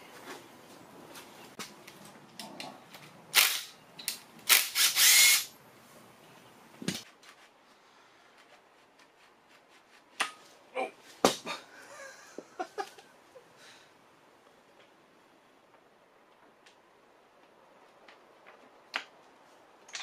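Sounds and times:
cordless impact driver running: 0:04.5 - 0:05.5.

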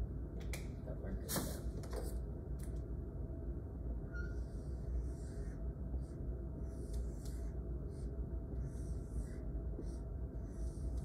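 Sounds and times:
steady low hum: 0:00.0 - 0:11.0
marker strokes on a whiteboard: 0:04.2 - 0:11.0.

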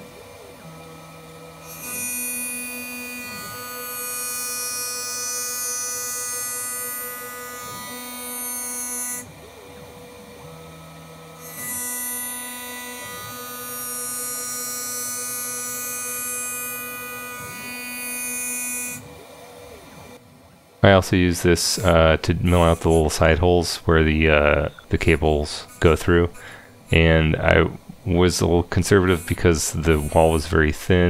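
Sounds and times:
router spindle whine: 0:00.0 - 0:20.3, 0:21.1 - 0:31.0.

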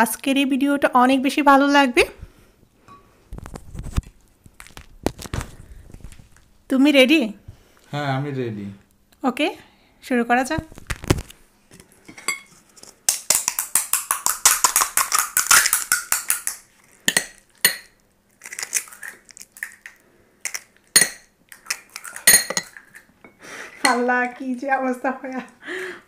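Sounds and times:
spoons clinking on ceramic bowls: 0:12.1 - 0:18.0, 0:20.5 - 0:24.1.

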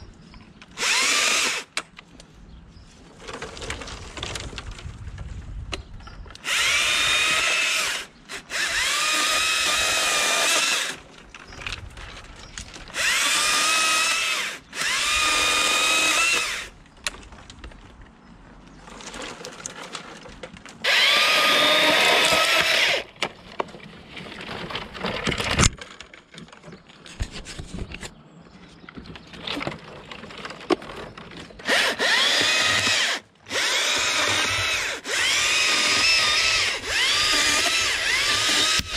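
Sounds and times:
chainsaw cutting: 0:00.7 - 0:01.8, 0:06.4 - 0:11.1, 0:12.9 - 0:16.7, 0:20.8 - 0:23.1, 0:31.6 - 0:38.9.

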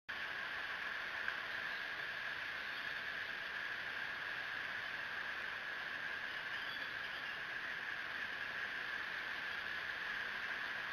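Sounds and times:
microphone background hiss: 0:00.1 - 0:10.9.

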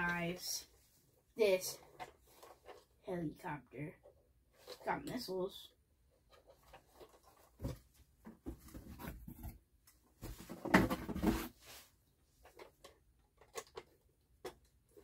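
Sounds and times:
plastic toy knocks and rustles: 0:10.2 - 0:11.5
plastic toy clatter: 0:12.4 - 0:14.7.

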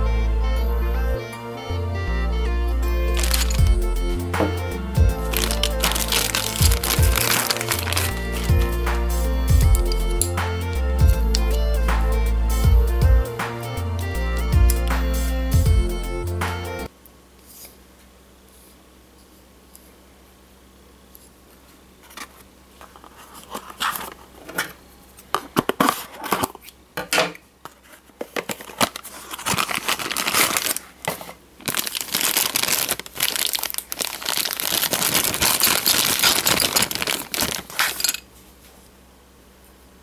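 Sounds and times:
packaging crinkling and tearing: 0:03.1 - 0:03.8, 0:05.2 - 0:09.0, 0:28.3 - 0:38.2
cardboard box opened: 0:03.2 - 0:03.7, 0:05.3 - 0:08.7, 0:27.7 - 0:38.0.

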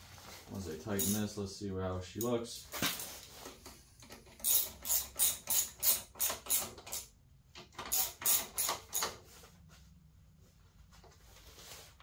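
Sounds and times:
ratchet wrench clicking: 0:04.1 - 0:07.1, 0:07.9 - 0:09.1.

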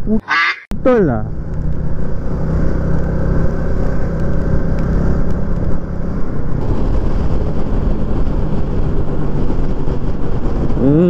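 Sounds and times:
wind and road rush: 0:00.0 - 0:11.0
motorcycle engine cruising: 0:00.8 - 0:11.0.

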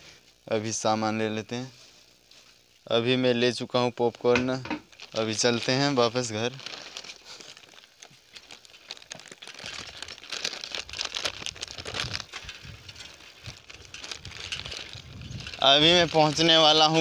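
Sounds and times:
crinkling rustle on microphone: 0:01.5 - 0:02.9, 0:03.7 - 0:17.0
bicycle rumbling over dirt track: 0:08.5 - 0:17.0.

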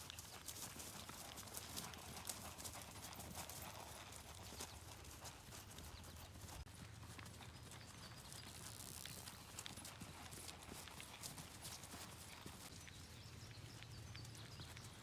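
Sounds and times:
faint quick hoofbeats on grass: 0:00.0 - 0:15.0.

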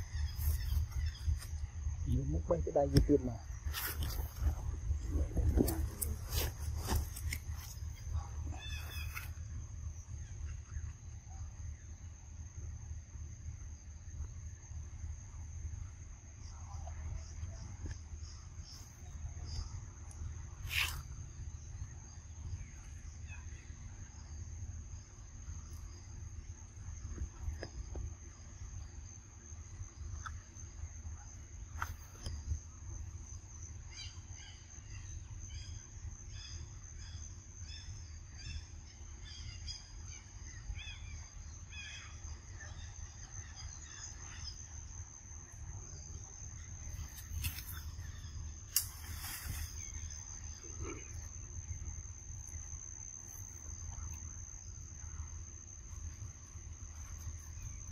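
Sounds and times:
high-pitched insect drone: 0:00.0 - 0:12.2
bird chirps: 0:07.9 - 0:09.3.

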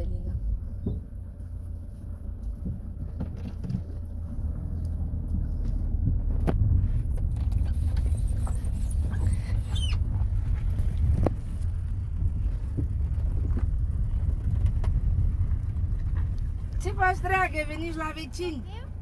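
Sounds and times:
car engine and tyres rumbling: 0:00.0 - 0:19.0
brief high squeak: 0:08.1 - 0:10.0.

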